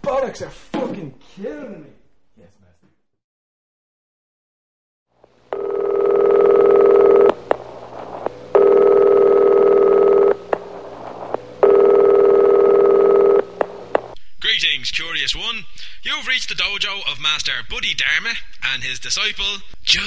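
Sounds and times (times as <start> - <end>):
telephone ringing: 5.5 - 7.4, 8.5 - 10.4, 11.6 - 13.5.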